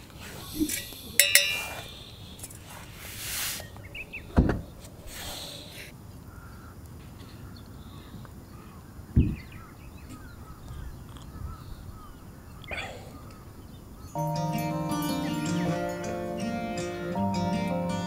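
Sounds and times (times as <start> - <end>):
dull thumps: 4.3 - 4.7, 9.2 - 9.5
crows cawing: 6.3 - 13.5.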